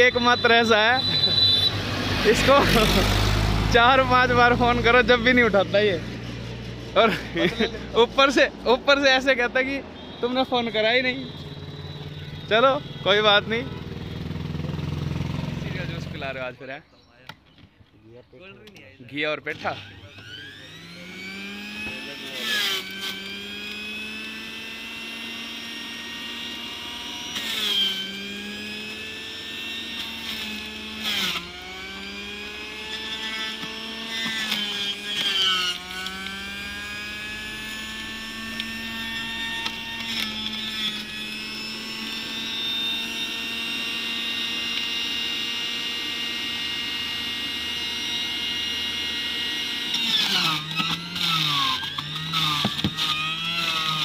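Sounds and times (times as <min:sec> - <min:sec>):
electric juicer whining: 0:00.0 - 0:16.3, 0:19.5 - 0:54.0
knock of piece hitting cutter: 0:52.6 - 0:53.0.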